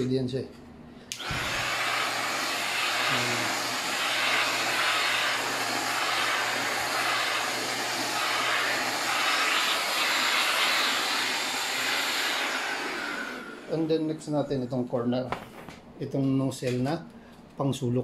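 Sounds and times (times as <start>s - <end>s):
handheld vacuum cleaner running: 1.1s - 14.1s.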